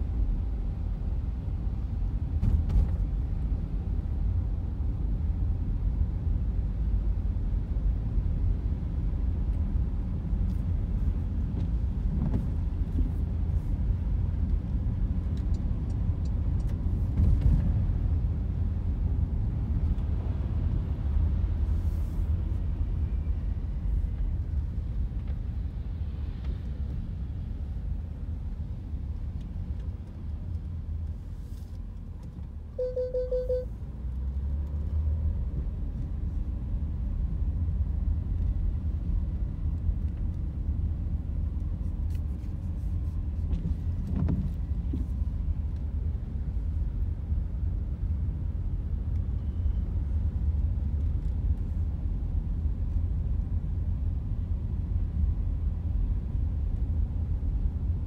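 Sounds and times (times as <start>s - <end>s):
car driving rumble: 0.0s - 58.0s
short electronic beep: 32.8s - 33.7s.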